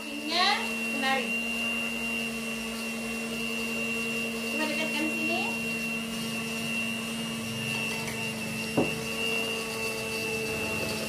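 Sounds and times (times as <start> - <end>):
electric hand mixer running: 0.0 - 11.0.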